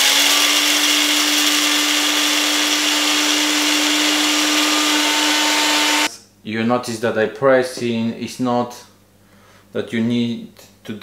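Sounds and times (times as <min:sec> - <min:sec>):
blender motor hum: 0:00.0 - 0:06.1
coffee beans being ground: 0:00.0 - 0:06.1.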